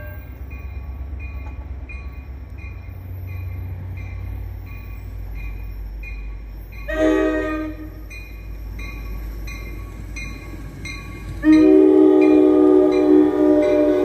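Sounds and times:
train horn blasts: 0:00.0 - 0:00.4, 0:06.9 - 0:08.0, 0:11.3 - 0:14.0
low rumble of train: 0:00.0 - 0:14.0
railroad crossing bell dinging: 0:00.0 - 0:14.0.

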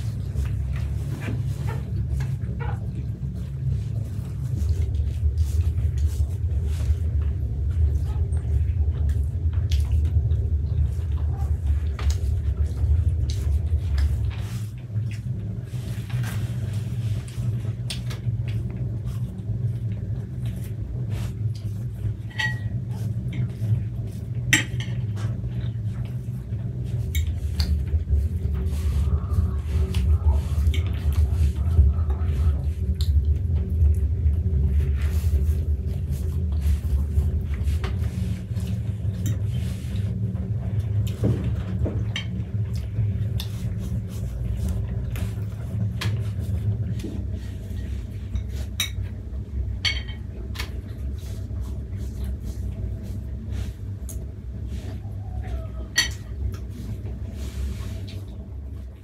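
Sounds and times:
low rumble: 0:00.0 - 0:59.0
dishes and cutlery clinking: 0:22.2 - 0:22.8, 0:24.5 - 0:25.2, 0:49.8 - 0:50.3, 0:55.9 - 0:56.3.

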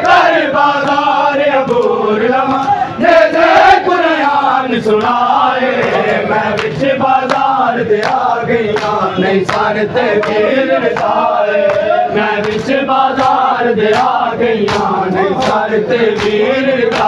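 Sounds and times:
men chanting a lament: 0:00.0 - 0:17.0
chest-beating slaps: 0:11.0 - 0:17.0.

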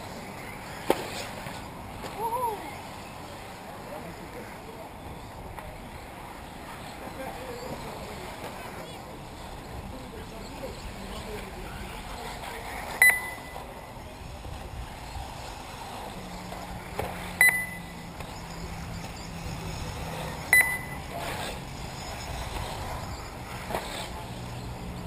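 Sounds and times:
track noise: 0:00.0 - 0:25.0
high electronic beeps: 0:13.0 - 0:13.6, 0:17.4 - 0:19.4, 0:20.5 - 0:21.1.

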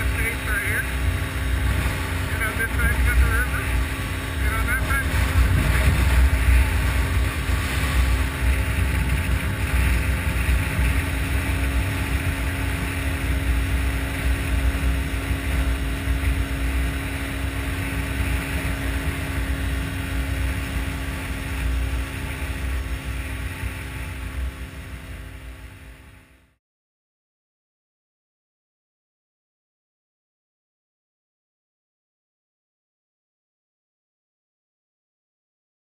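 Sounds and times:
motorcycle engine running: 0:00.0 - 0:26.6.

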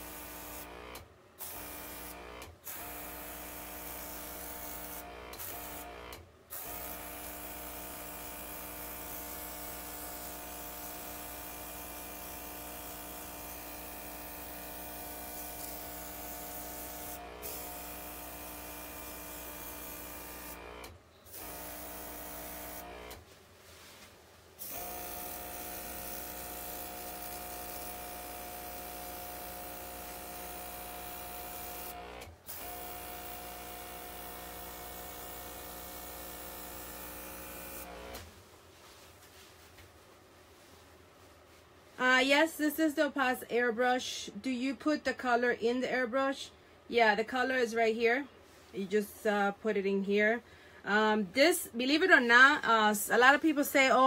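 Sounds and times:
compressor humming: 0:08.3 - 0:23.2, 0:24.6 - 0:38.3.

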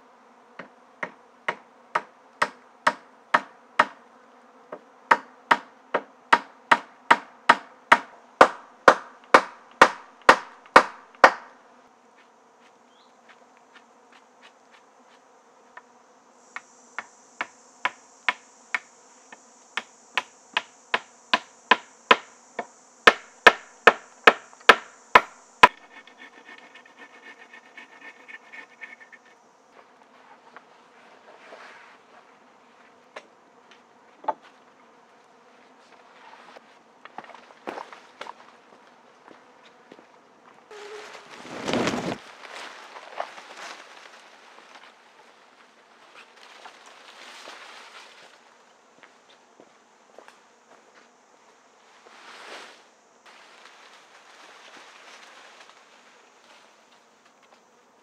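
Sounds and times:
insects buzzing: 0:00.0 - 0:58.0
hammer blows on wood: 0:06.4 - 0:11.5, 0:16.6 - 0:29.4.

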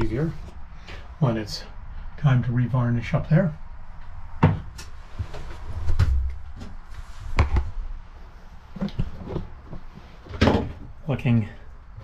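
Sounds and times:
wooden locker knocks and thumps: 0:04.4 - 0:04.7, 0:08.8 - 0:10.9.

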